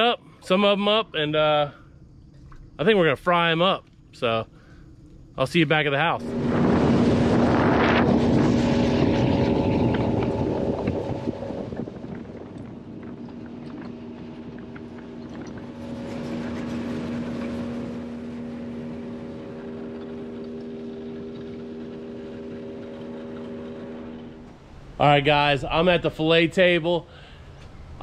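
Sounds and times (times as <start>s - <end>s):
outboard engine droning: 0.0s - 28.0s
rushing wind and water: 6.2s - 25.8s.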